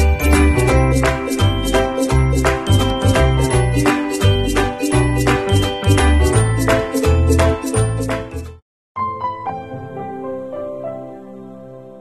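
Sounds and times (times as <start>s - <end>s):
bass line: 0.0s - 8.0s
bright tinkling melody: 0.0s - 8.1s.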